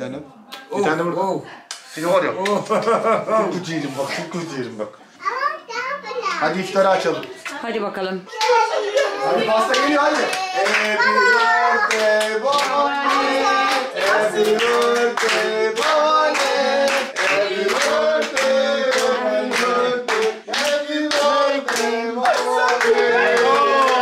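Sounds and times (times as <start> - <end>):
group clapping in a steady beat: 7.2 - 7.7, 9.6 - 24.0
group singing together: 8.4 - 24.0.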